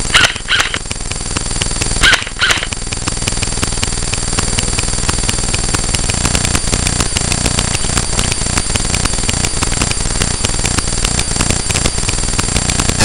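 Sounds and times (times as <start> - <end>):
crackle of sharp clicks: 0.0 - 13.0
electrical buzz: 0.0 - 13.0
low hum: 0.0 - 13.0.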